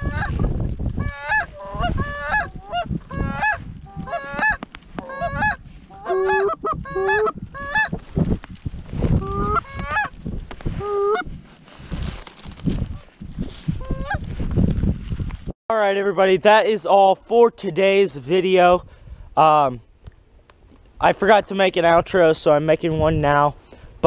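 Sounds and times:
goose call honks: 1.0s - 7.9s.

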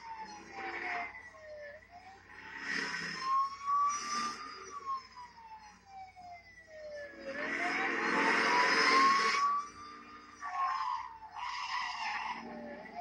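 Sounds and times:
car engine and tyre noise: 0.0s - 13.0s
police siren wailing: 0.0s - 13.0s.

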